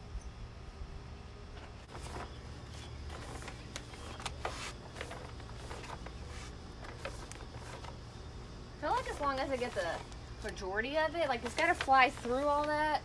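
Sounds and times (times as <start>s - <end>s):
plastic bag rustling and crinkling: 1.8s - 8.2s, 8.8s - 13.0s.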